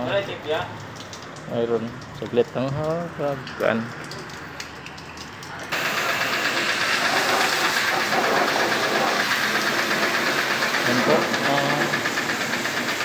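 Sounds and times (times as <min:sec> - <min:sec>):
pressure washer spraying water: 0:05.7 - 0:13.0.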